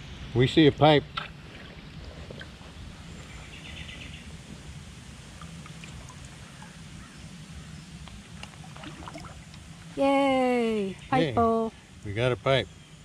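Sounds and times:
small water splashes: 8.4 - 9.7.

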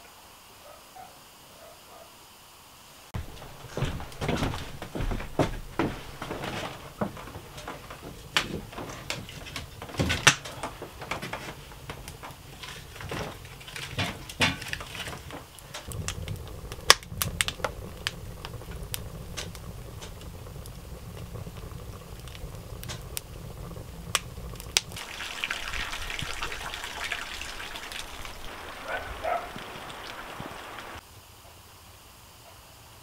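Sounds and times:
steady low rumble: 3.2 - 13.6, 15.4 - 25.0
sharp crack: 3.2 - 31.0
wood and metal clattering: 3.2 - 31.0.

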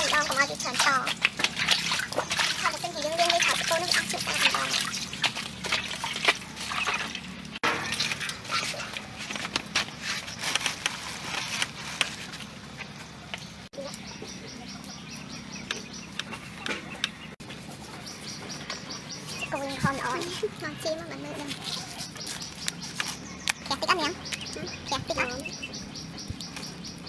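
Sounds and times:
water splashing and dripping: 0.0 - 9.9.

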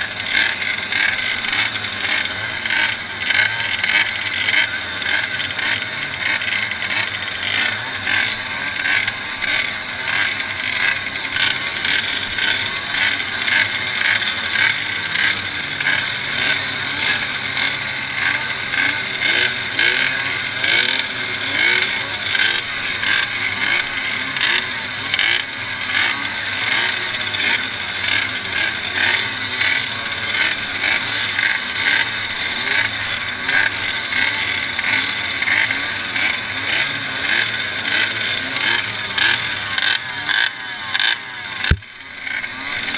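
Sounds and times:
two-stroke motorcycle engines revving: 0.0 - 42.9.

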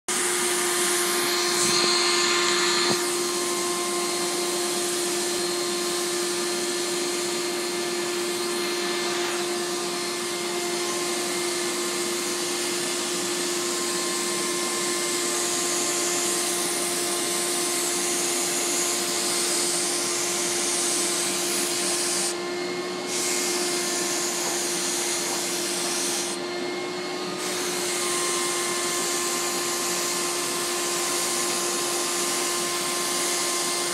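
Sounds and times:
turbine humming: 0.1 - 5.7
spray gun hissing: 0.1 - 22.4, 23.0 - 26.4.

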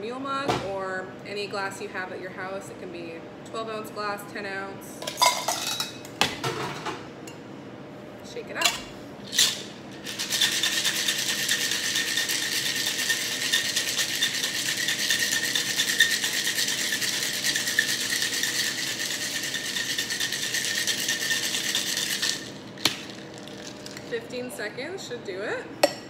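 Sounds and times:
ice rattling in cocktail shaker: 9.3 - 24.1.

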